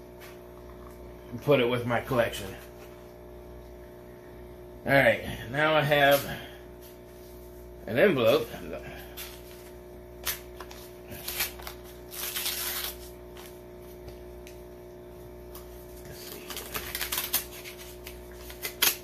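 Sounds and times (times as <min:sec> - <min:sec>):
paper rustling: 0:09.2 - 0:14.2, 0:15.5 - 0:19.0
paper tearing: 0:10.2 - 0:13.6, 0:15.6 - 0:19.0.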